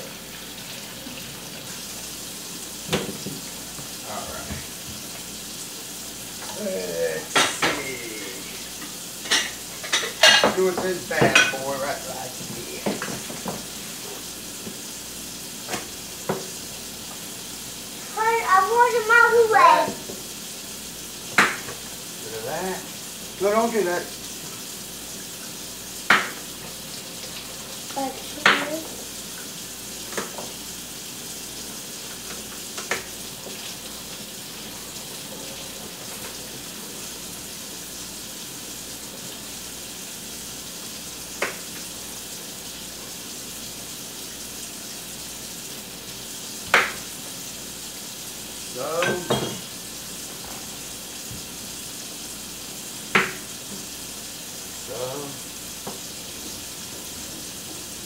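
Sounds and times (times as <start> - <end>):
steady hiss: 35.9 - 58.0.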